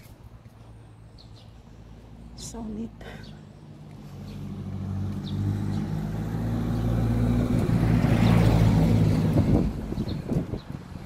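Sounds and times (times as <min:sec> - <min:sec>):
tyre and road noise: 0:00.0 - 0:11.0
vehicle engine passing by: 0:03.6 - 0:11.0.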